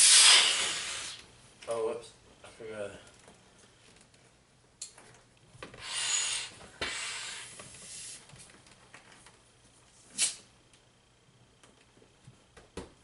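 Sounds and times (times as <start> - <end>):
air rushing through hand pump: 0.0 - 1.2, 5.8 - 8.2.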